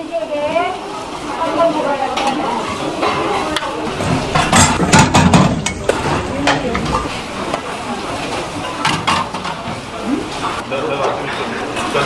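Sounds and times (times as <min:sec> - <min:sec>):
water running off: 0:00.2 - 0:10.6
metal strainer and bowls clanking: 0:04.0 - 0:07.2.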